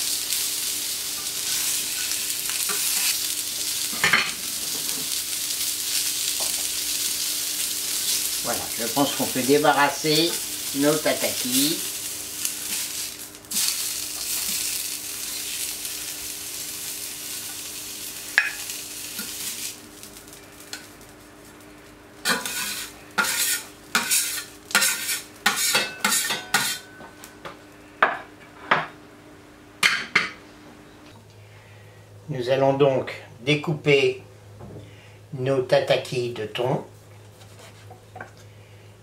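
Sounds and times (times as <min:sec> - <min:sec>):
fish sizzling on hot plate: 0:00.0 - 0:26.9
metal spatula scraping plate: 0:22.3 - 0:26.8.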